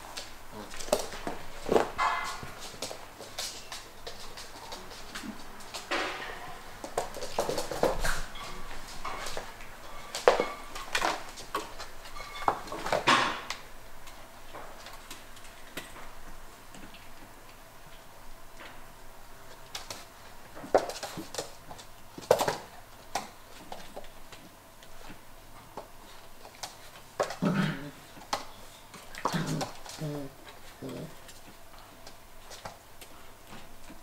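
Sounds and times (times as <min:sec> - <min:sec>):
puppy claws clicking on floor: 0:00.1 - 0:09.5, 0:19.5 - 0:25.0.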